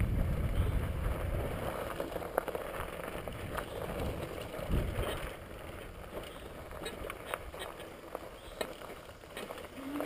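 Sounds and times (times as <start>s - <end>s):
bicycle rolling over gravel: 0.0s - 10.0s
wind rumbling on microphone: 0.0s - 10.0s.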